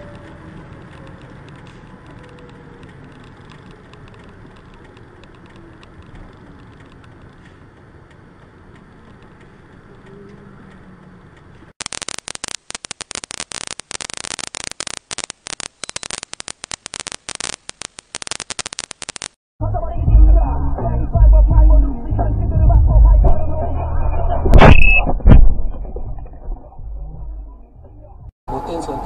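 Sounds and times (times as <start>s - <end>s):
car road and engine noise: 0.0s - 11.8s
loud irregular crackling: 11.8s - 19.4s.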